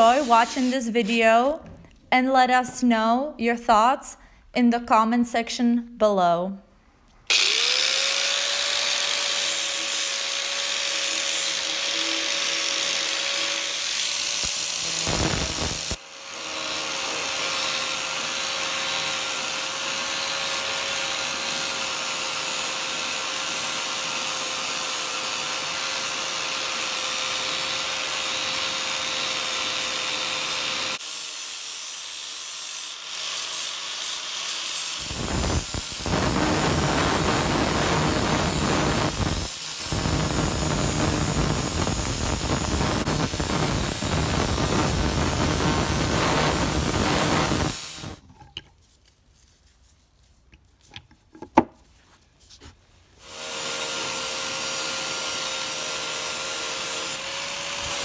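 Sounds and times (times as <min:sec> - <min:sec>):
angle grinder motor whine: 0:07.3 - 0:16.0.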